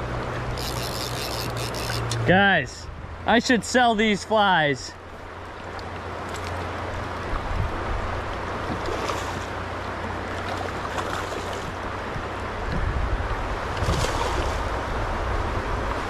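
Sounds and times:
rocky stream rushing: 0.0 - 16.0
wind rumble on microphone: 6.6 - 10.2, 10.8 - 16.0.

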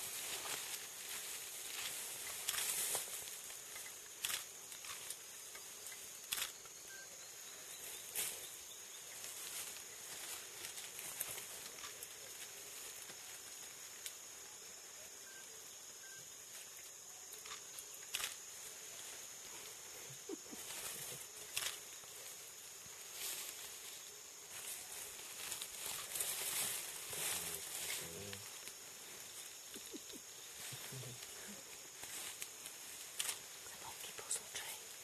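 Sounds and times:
steady high hiss: 0.0 - 35.0
twigs and leaves snapping: 1.8 - 3.4, 4.1 - 5.6, 16.8 - 18.4, 20.4 - 22.0.

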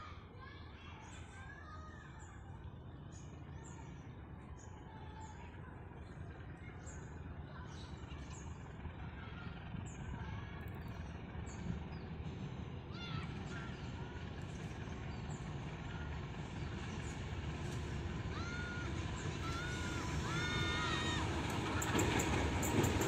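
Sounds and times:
diesel locomotive engine rumble: 0.0 - 23.0
birds chirping: 13.0 - 23.0.

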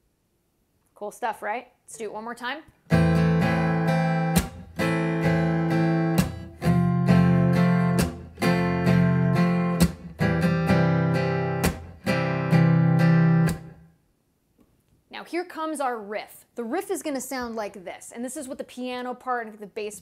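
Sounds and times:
acoustic guitar strumming: 2.9 - 13.9.

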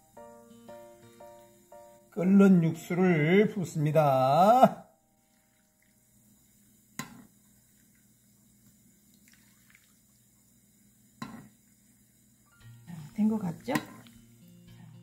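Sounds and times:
broth pouring into bowl: 4.3 - 15.0.

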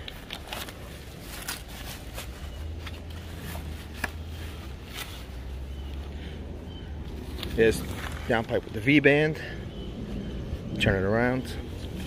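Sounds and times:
bubble wrap and paper crinkling: 0.0 - 5.7.

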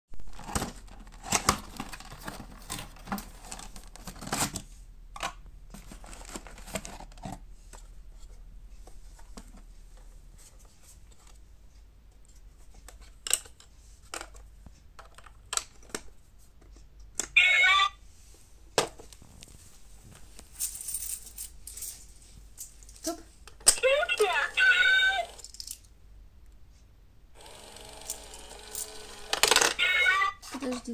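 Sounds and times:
cardboard scraping and rustling: 0.2 - 4.7, 5.7 - 7.4.

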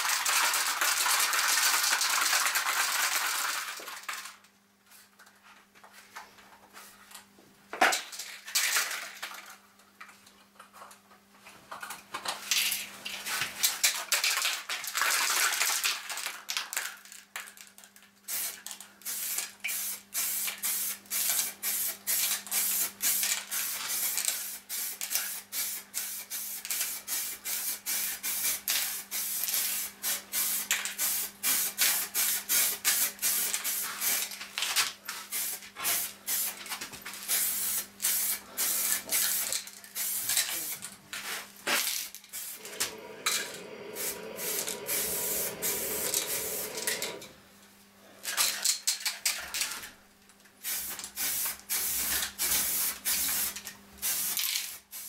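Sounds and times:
spray paint can hissing: 18.3 - 34.3, 35.2 - 36.6, 37.2 - 40.8, 42.3 - 47.2, 50.6 - 55.0.

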